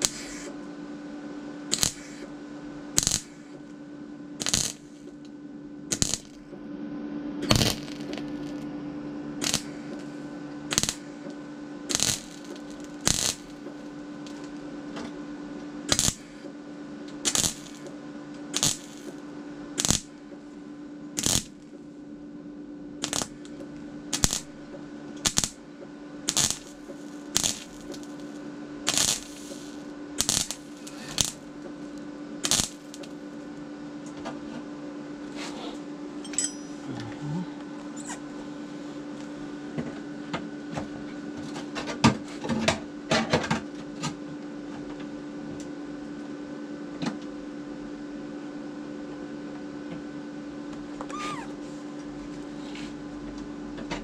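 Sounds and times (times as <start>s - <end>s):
steady hum: 0.0s - 43.2s
metallic clinks: 36.2s - 37.0s.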